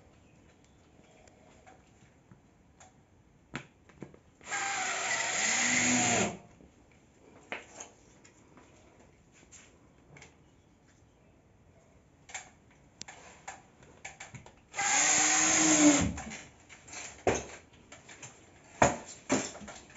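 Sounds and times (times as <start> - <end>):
power drill driving screw: 4.4 - 6.4, 14.8 - 16.3.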